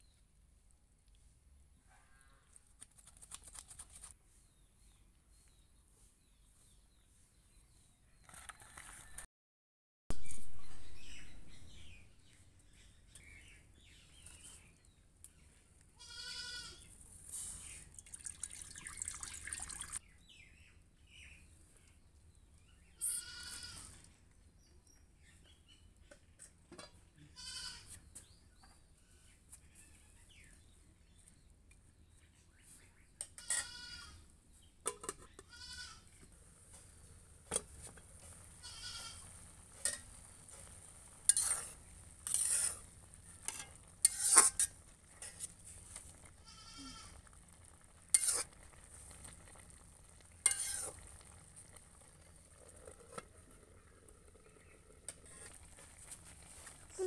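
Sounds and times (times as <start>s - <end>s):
goats bleating: 23.0s - 23.9s, 38.6s - 39.3s, 46.4s - 47.2s
metal wok clanking: 39.6s - 42.8s, 43.4s - 45.5s, 48.1s - 48.5s, 50.4s - 51.0s.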